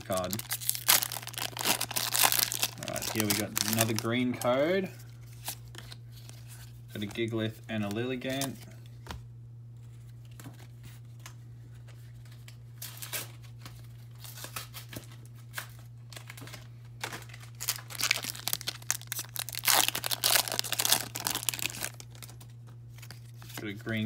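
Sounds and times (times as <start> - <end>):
foil pack crinkling as torn open: 0.0 - 4.5, 12.3 - 23.6
steady low hum: 0.0 - 24.0.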